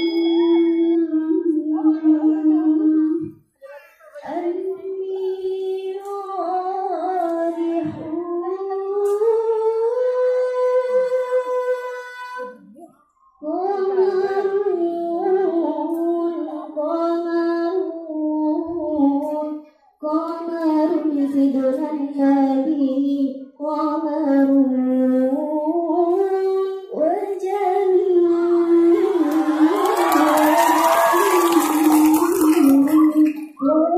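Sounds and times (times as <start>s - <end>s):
girl singing into microphone: 0.0s - 33.9s.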